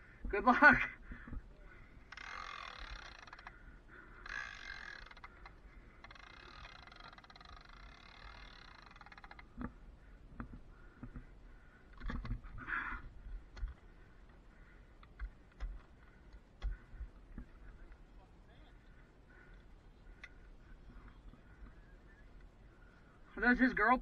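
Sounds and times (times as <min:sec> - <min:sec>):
rattling whir of cable tool: 0:02.1 - 0:03.6, 0:04.2 - 0:09.7.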